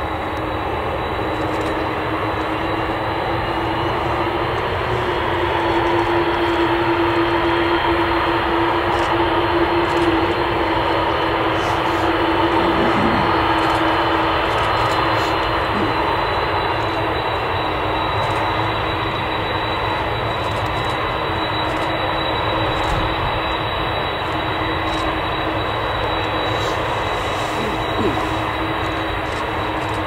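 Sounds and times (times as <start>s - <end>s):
jet engines at taxi power: 0.0s - 30.0s.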